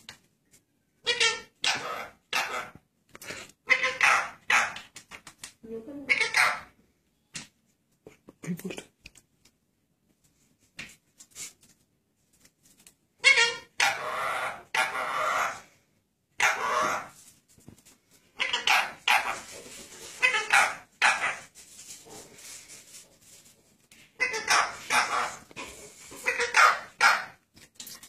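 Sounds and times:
parakeet squawking: 0:01.0 - 0:02.8, 0:03.6 - 0:04.8, 0:06.1 - 0:06.8, 0:13.2 - 0:15.7, 0:16.4 - 0:17.2, 0:18.4 - 0:19.6, 0:20.2 - 0:21.5, 0:24.2 - 0:27.4.

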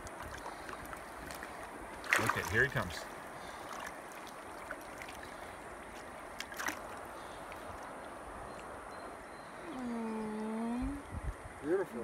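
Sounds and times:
fish splashing in water: 0:00.0 - 0:08.2
stream water running: 0:00.0 - 0:12.0.

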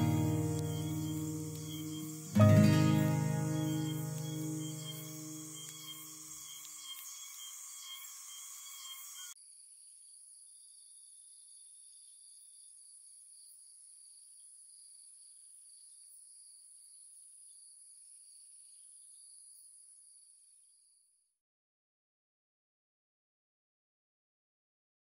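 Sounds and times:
background music: 0:00.0 - 0:05.8
crickets trilling: 0:00.0 - 0:09.4.

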